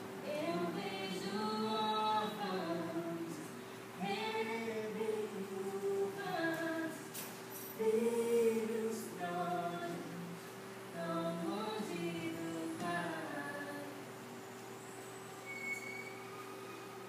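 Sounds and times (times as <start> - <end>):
woman singing slow melody: 0.2 - 7.2, 7.8 - 14.1.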